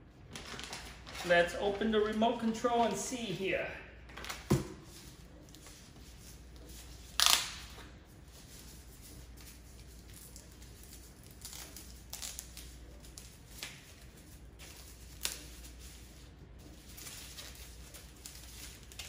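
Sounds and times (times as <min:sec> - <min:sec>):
plastic wrapping crinkling: 0:00.3 - 0:03.1, 0:06.9 - 0:19.0
wrapping snap: 0:07.2 - 0:07.9.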